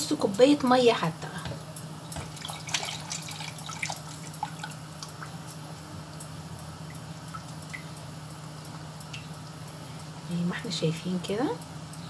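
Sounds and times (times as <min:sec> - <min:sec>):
steady low hum: 0:00.0 - 0:12.0
milk pouring and splashing: 0:02.2 - 0:05.4.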